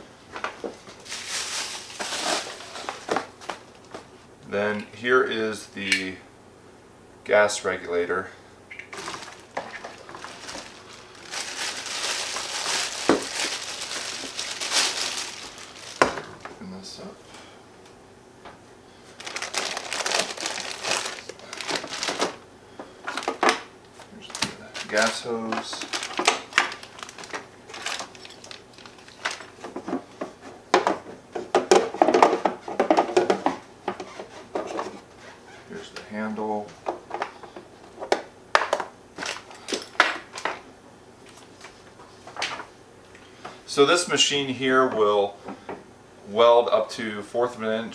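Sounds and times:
plastic bag crinkling: 0.9 - 3.8, 8.9 - 16.5, 19.0 - 22.4, 23.0 - 29.9.

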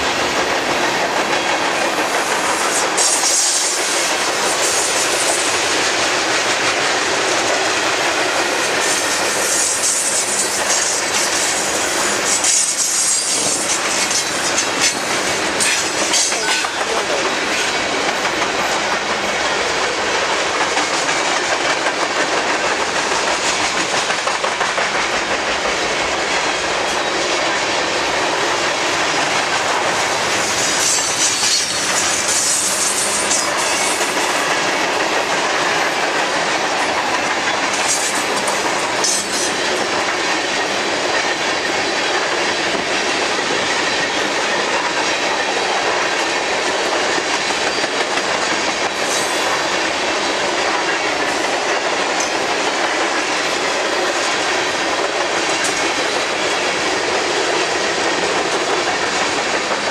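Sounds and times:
train wheels rumbling on rails: 0.0 - 59.9
high wheel squeal: 9.4 - 15.0, 30.4 - 34.0.

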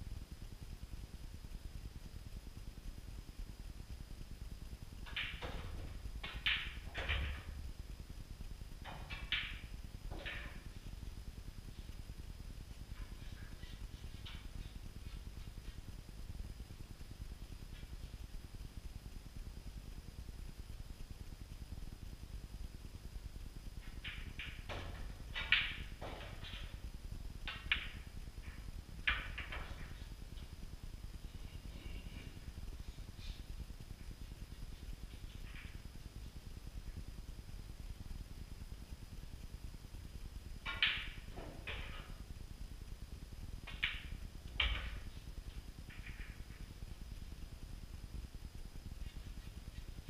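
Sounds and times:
pool balls clicking: 5.0 - 7.6, 8.8 - 10.8, 23.8 - 26.8, 27.4 - 30.4, 40.6 - 42.3, 43.6 - 46.6.

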